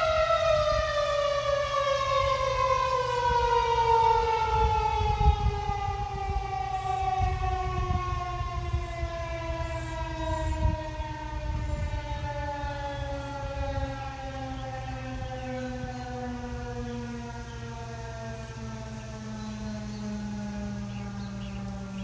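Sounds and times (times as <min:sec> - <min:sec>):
warning siren winding down: 0:00.0 - 0:22.0
gusty low rumble: 0:04.4 - 0:16.9.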